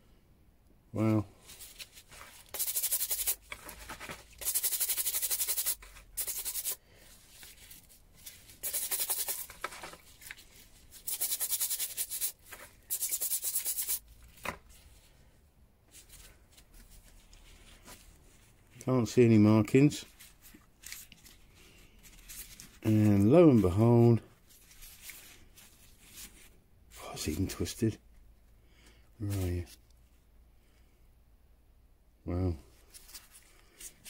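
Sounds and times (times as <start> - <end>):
scrubbing brush on metal: 2.1 - 3.4, 4.4 - 6.8, 7.4 - 9.5, 11.0 - 14.0.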